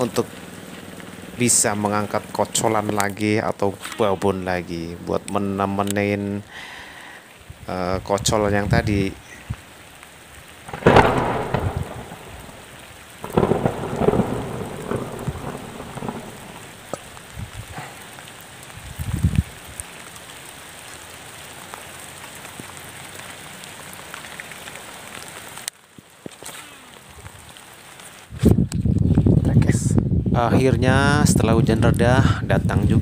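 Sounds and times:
loud rumbling bursts: 0.0s - 6.2s, 10.6s - 18.2s
heavy rain on water: 0.0s - 29.8s.

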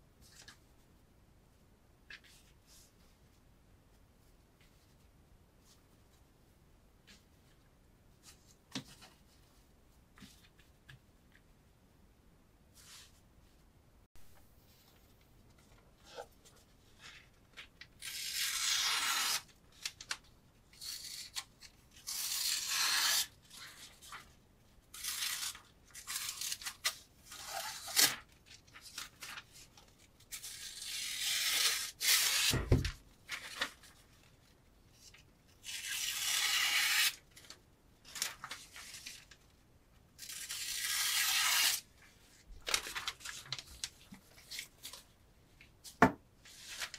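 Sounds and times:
knife slicing through paper: 18.0s - 19.5s, 22.0s - 23.3s, 40.3s - 41.8s.

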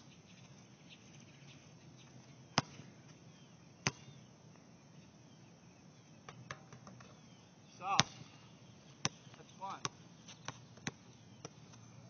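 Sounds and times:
basketball bouncing on court: 2.6s - 2.9s, 3.8s - 4.2s, 7.9s - 8.3s, 9.0s - 11.7s.

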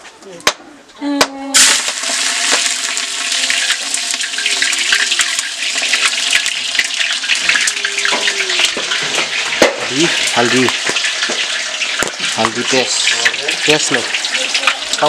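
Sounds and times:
onions sizzling in hot oil: 1.6s - 15.0s.

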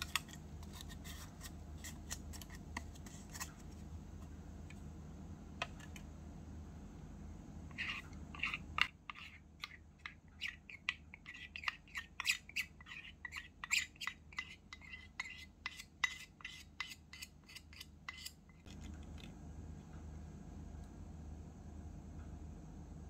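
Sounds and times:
metal spoon scraping steel cup: 7.7s - 9.8s.

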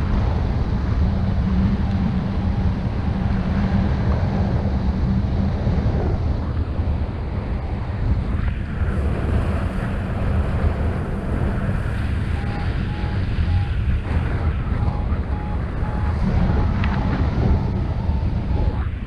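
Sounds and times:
wind buffeting microphone: 0.0s - 19.0s
variometer short beeps: 12.4s - 13.8s.

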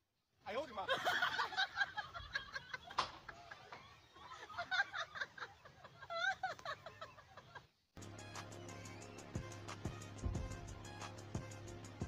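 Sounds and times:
people laughing: 0.7s - 7.8s
music with steady beat: 8.0s - 12.0s.

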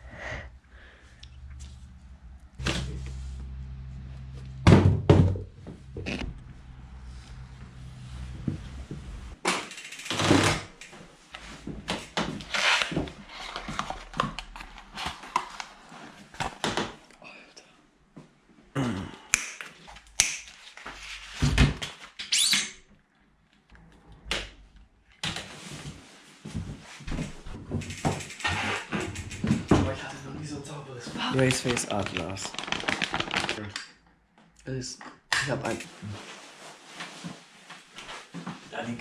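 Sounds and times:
bike parts clicking and knocking: 9.4s - 12.4s, 27.6s - 29.8s.

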